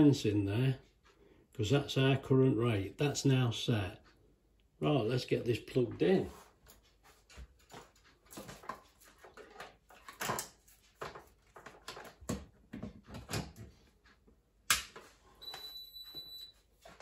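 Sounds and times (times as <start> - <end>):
handling noise and light clicks: 5.8 - 16.2
high beep: 15.4 - 16.5.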